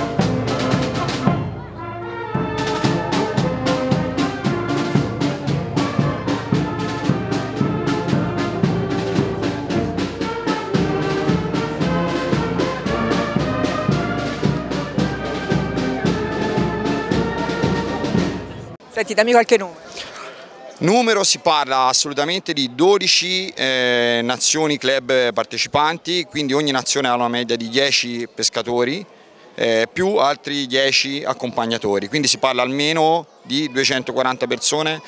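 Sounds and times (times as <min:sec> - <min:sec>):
steady drum beat: 0:00.0 - 0:01.6, 0:02.3 - 0:18.8
brass band chords: 0:00.0 - 0:18.8.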